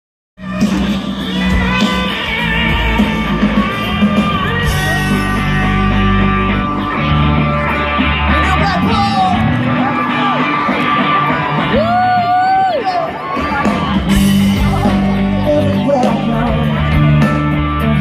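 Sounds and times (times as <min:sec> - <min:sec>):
live rock band playing loudly: 0:00.4 - 0:18.0.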